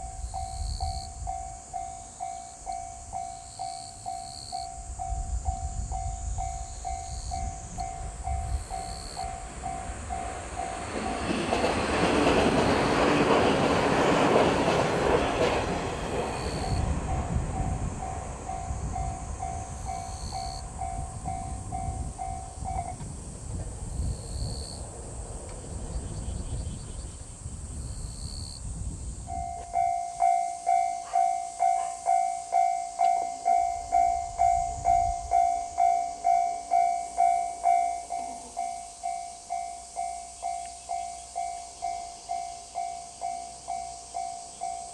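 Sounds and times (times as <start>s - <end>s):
railway crossing bell ringing: 0.0s - 23.0s, 29.2s - 44.9s
train rushing past: 0.0s - 27.2s.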